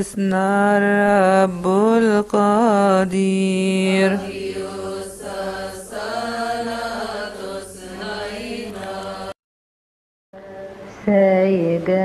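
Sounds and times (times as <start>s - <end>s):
chanted hymn singing: 1.6s - 9.4s.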